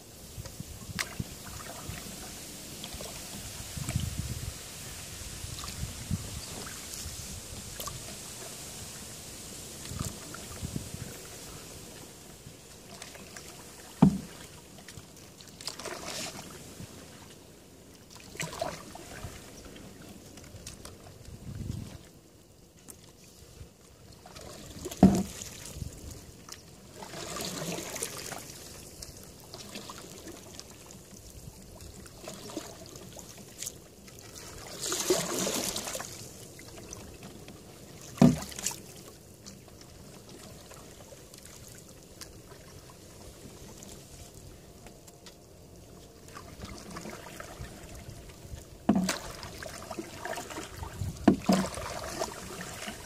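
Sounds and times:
paddle strokes swishing in water: 0:00.0 - 0:53.0
paddle knocking canoe hull: 0:13.9 - 0:14.5, 0:24.4 - 0:25.5, 0:37.3 - 0:38.8, 0:48.7 - 0:53.0.

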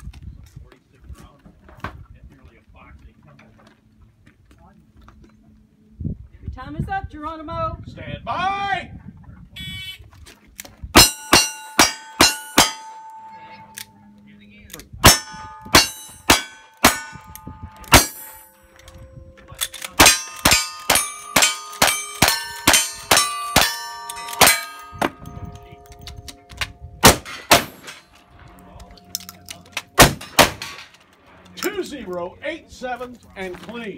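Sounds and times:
steel targets ringing: 0:11.0 - 0:14.1, 0:15.0 - 0:28.2
shotgun blasts: 0:27.0 - 0:28.0, 0:30.0 - 0:30.9
rifle shots: 0:27.0 - 0:28.1, 0:30.0 - 0:30.9.

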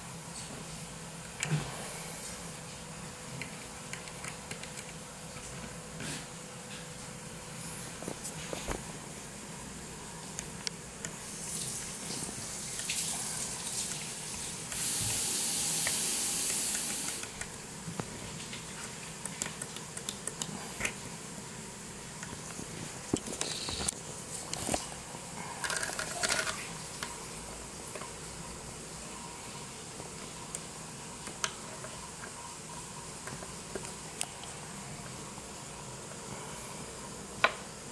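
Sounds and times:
loud steady hiss: 0:07.3 - 0:17.9.

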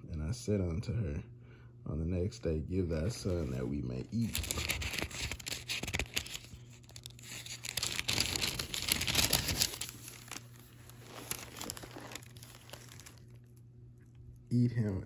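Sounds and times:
pages turning rustling: 0:03.3 - 0:13.6.

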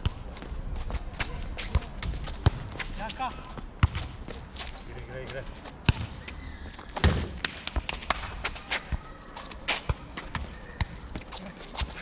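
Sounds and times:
football thuds: 0:07.0 - 0:07.6.

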